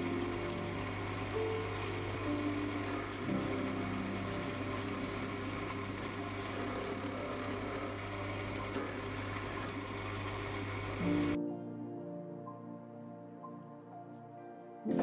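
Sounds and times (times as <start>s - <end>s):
lathe motor hum: 0.0s - 11.4s.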